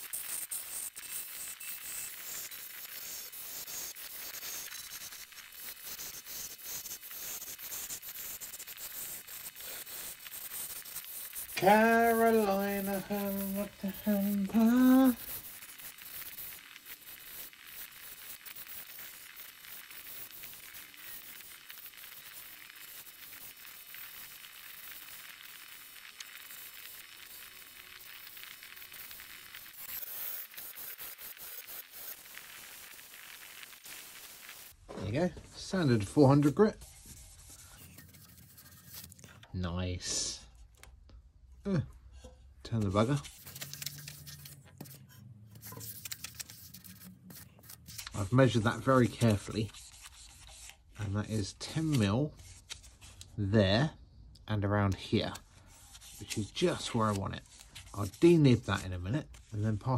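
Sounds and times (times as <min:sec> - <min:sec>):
chisel scraping on wood lathe: 0:00.0 - 0:32.4, 0:36.3 - 0:39.4
man singing: 0:11.6 - 0:15.2.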